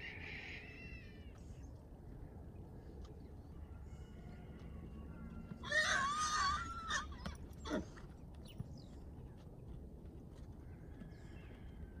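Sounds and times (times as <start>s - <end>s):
horse whinnying: 5.6s - 8.0s.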